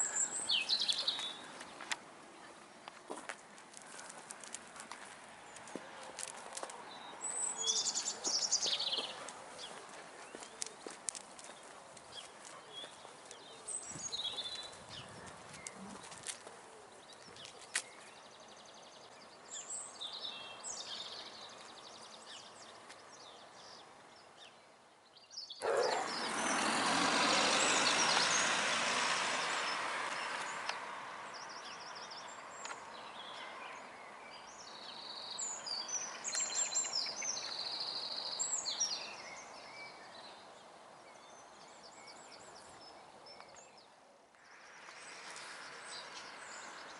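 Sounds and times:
songbirds chirping: 0.0 - 46.9
passing vehicle rushing: 25.8 - 31.4.

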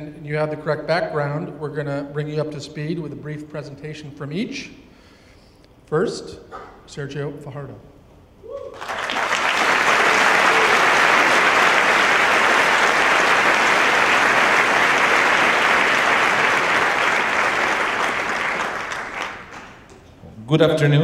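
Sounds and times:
audience applauding: 8.7 - 20.0.

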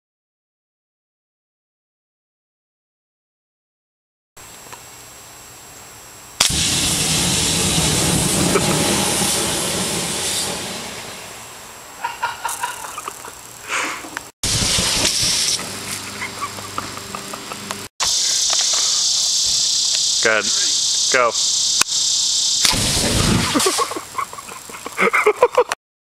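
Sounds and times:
aerosol can hissing: 6.4 - 11.5, 12.4 - 25.0.

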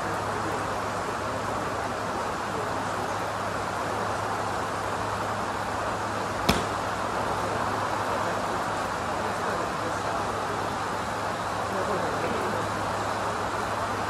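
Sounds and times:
golf club striking ball: 6.5 - 6.9.

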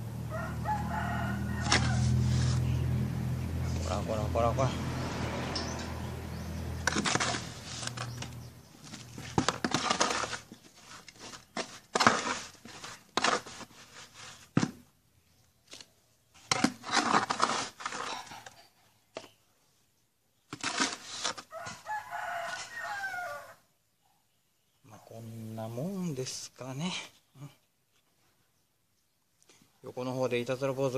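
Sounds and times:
rooster crowing: 0.1 - 2.7, 21.5 - 23.7
hands scooping potting soil: 0.6 - 19.4, 20.3 - 23.4.

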